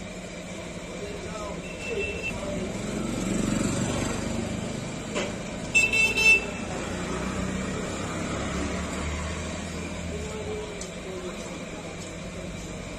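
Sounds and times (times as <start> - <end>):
street traffic noise: 0.0 - 12.9
high-pitched vehicle horn honk: 5.7 - 6.7.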